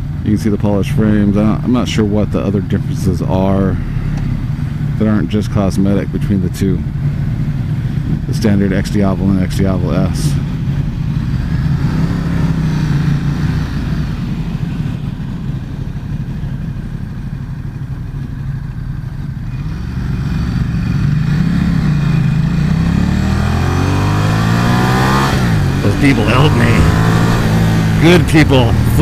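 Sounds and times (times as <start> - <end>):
motorcycle engine idling and revving: 0.0 - 29.0.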